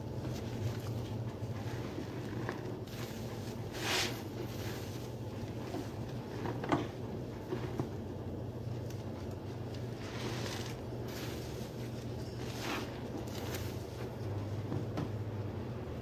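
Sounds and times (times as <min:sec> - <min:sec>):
steady low hum: 0:00.0 - 0:16.0
wet sponge squishes: 0:00.2 - 0:06.6.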